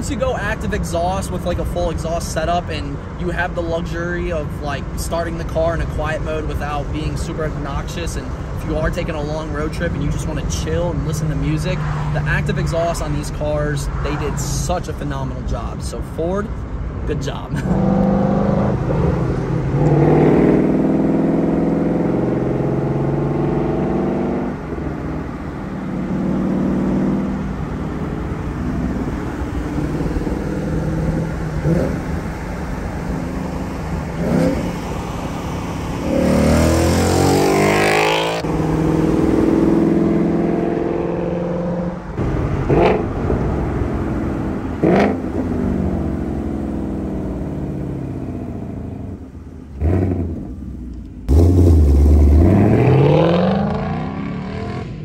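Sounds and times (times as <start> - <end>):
car engine accelerating: 17.5 - 55.0
exhaust blips: 17.6 - 55.0.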